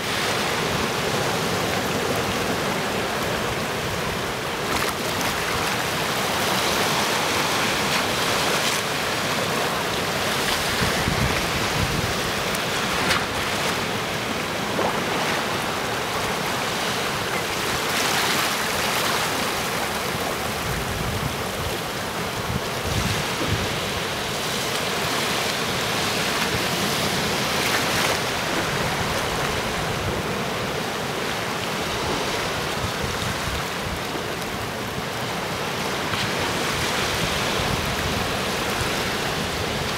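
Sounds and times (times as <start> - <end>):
surf splashing among boulders: 0.0 - 39.9.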